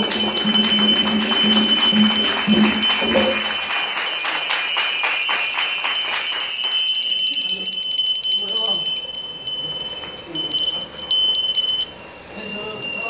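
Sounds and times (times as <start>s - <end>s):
low repeated note: 0.0s - 3.7s.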